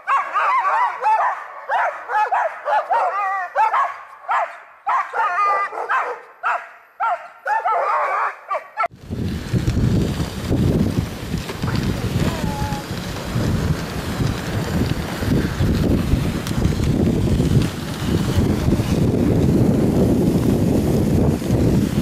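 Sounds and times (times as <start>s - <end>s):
sled dogs yipping and barking: 0.0s - 8.9s, 11.3s - 15.6s
wind on microphone: 8.9s - 22.0s.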